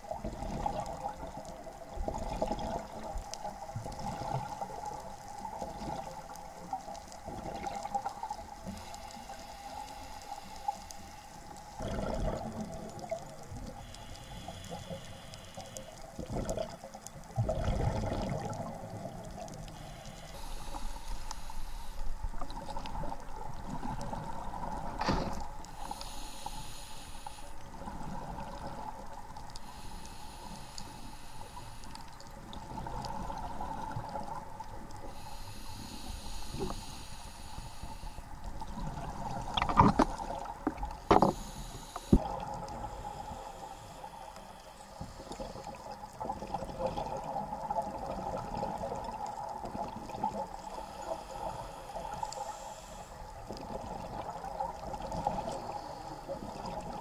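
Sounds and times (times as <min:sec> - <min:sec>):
diver's bubbles gurgling underwater: 0:00.2 - 0:06.3, 0:07.3 - 0:08.4, 0:11.8 - 0:13.7, 0:16.2 - 0:19.5, 0:38.6 - 0:41.4, 0:45.2 - 0:50.5
steady dull hum: 0:08.2 - 0:16.2, 0:18.8 - 0:46.0.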